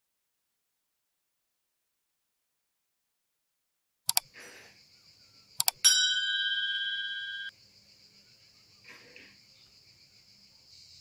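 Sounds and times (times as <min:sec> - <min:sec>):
faint high-pitched hiss: 0:04.3 - 0:11.0
double mouse click: 0:05.6 - 0:05.8
notification bell ding: 0:05.8 - 0:07.5.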